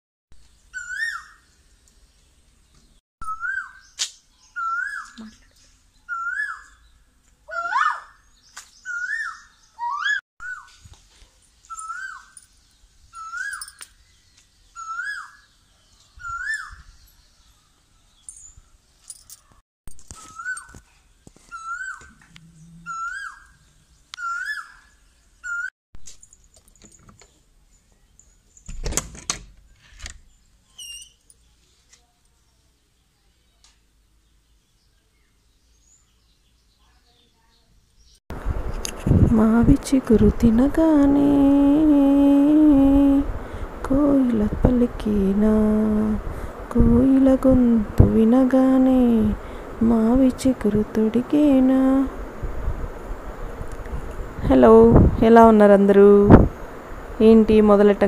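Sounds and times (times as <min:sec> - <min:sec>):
bird whistled call: 0:00.7 - 0:01.4, 0:03.2 - 0:05.4, 0:06.1 - 0:06.8, 0:08.8 - 0:10.7, 0:11.7 - 0:12.4, 0:13.2 - 0:13.8, 0:14.8 - 0:15.5, 0:16.2 - 0:17.0, 0:20.2 - 0:20.7, 0:21.5 - 0:22.2, 0:22.8 - 0:23.6, 0:24.2 - 0:25.7.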